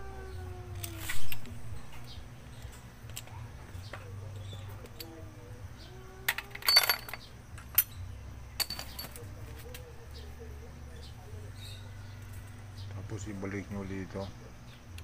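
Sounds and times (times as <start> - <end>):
low steady hum: 0.0 - 15.0
metal parts clinking: 2.6 - 5.3, 6.2 - 9.7.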